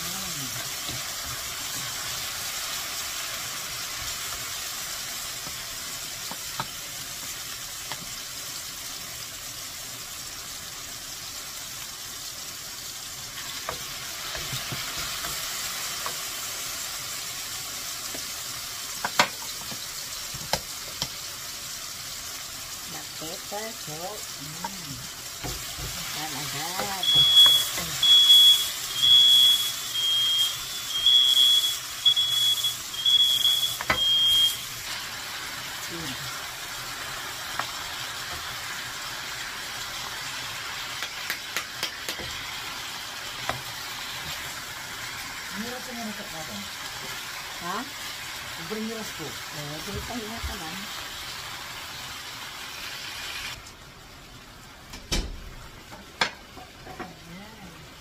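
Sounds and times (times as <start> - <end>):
squid sizzling in a pan: 0.0 - 58.0
smoke alarm beeping: 26.8 - 34.8.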